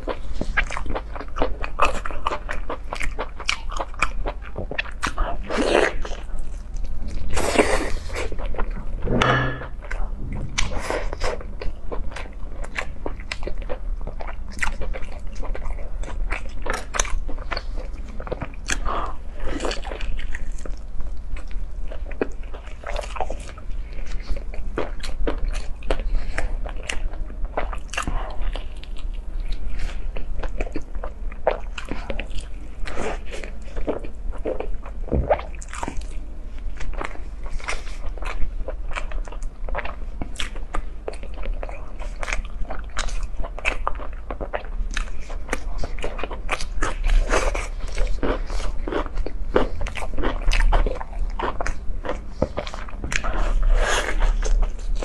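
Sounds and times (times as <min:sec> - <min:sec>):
person chewing food: 0:00.0 - 0:55.0.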